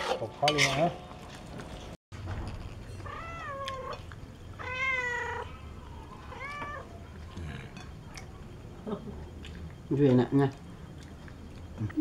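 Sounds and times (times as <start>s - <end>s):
cat meowing: 3.0s - 4.0s, 4.6s - 7.0s.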